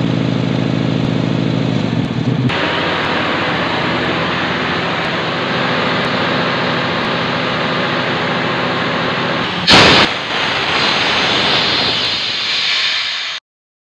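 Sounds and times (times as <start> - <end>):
air compressor droning: 0.0 - 13.4
loud blast of compressed air: 2.5 - 13.4
hiss of escaping air: 9.5 - 13.4.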